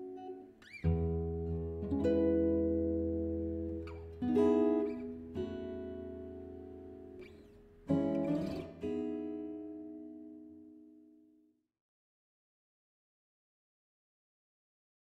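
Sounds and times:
acoustic guitar strummed chords: 0.0 - 11.1.

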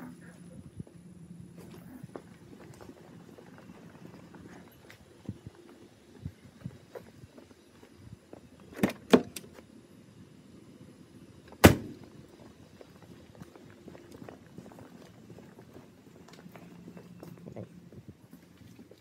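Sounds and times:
footsteps on concrete: 1.6 - 8.4, 12.3 - 19.0
car door slamming: 11.6 - 12.0.

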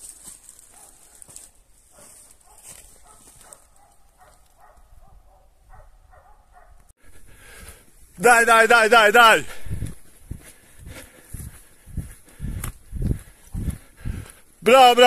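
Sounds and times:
dogs barking faintly: 0.6 - 6.9.

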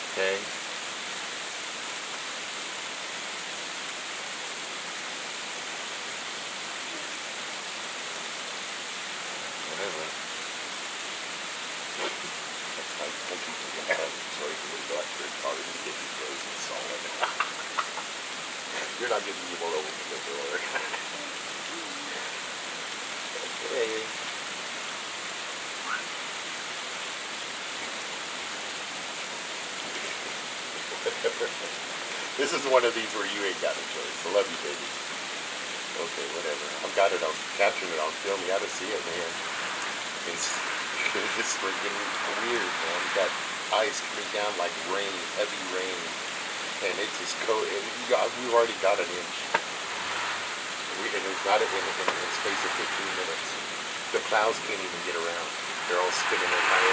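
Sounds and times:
sleet hissing on surfaces: 9.7 - 24.2, 29.4 - 56.9
heavy sleet falling: 36.0 - 56.9.

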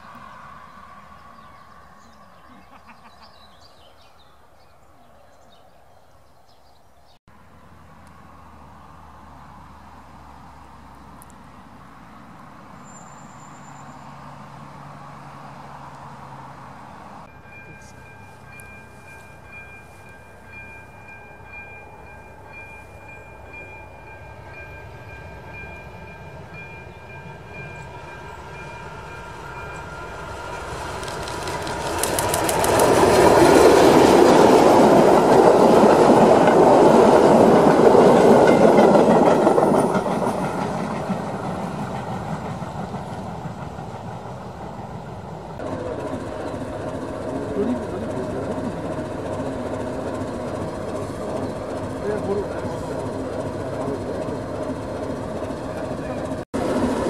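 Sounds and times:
diesel locomotive passing: 0.0 - 5.9, 7.3 - 57.0
wheels clicking over rail joints: 29.7 - 57.0.

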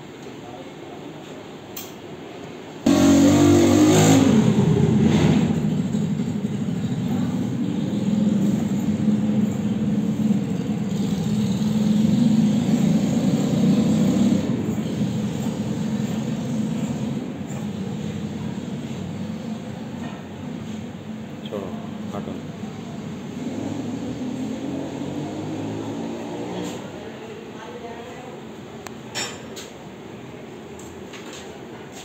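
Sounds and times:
engine running: 2.9 - 26.8.

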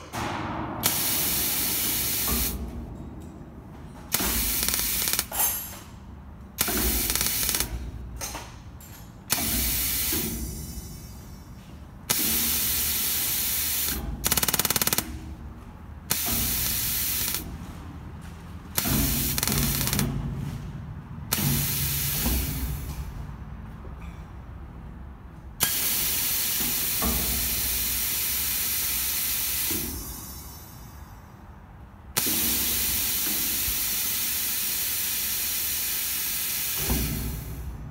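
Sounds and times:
compressed air hissing bursts: 0.8 - 2.6, 4.1 - 5.3, 6.6 - 7.8, 9.3 - 10.8, 12.1 - 15.0, 16.1 - 17.4, 18.8 - 20.1, 21.3 - 22.9, 25.6 - 30.1, 32.2 - 37.7
rapid buzzing rattle: 14.2 - 15.0.

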